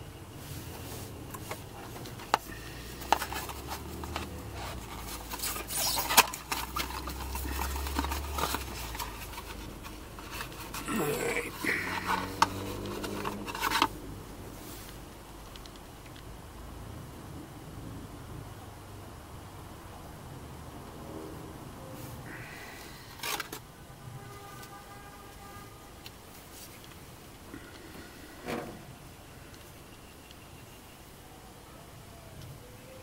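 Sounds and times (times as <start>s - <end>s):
rustling and scraping: 0.3s - 15.8s, 22.0s - 23.6s, 26.2s - 29.0s.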